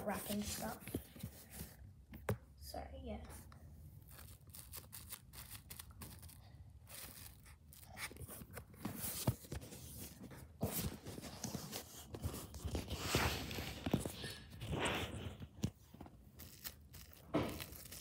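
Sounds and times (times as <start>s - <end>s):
plastic cling wrap crinkling: 4.0s - 8.5s, 15.9s - 18.0s.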